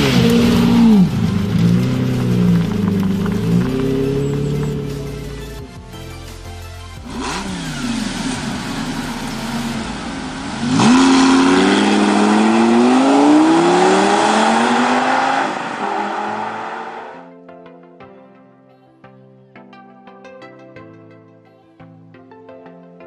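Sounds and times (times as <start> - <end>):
car engine revving: 0.0 - 6.3, 7.0 - 17.2.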